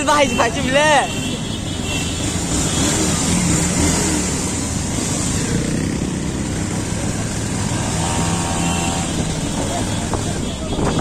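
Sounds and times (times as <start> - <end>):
wind noise on microphone: 9.1 - 11.0.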